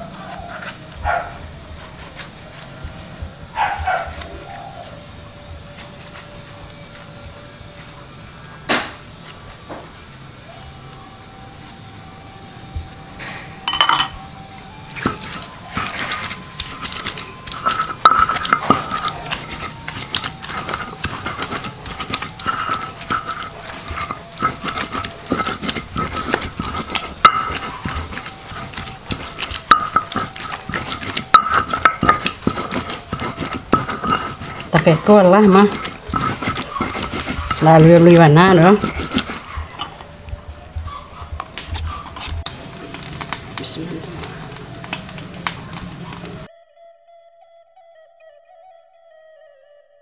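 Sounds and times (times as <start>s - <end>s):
utensils clinking on metal dishes: 13.2s - 40.2s.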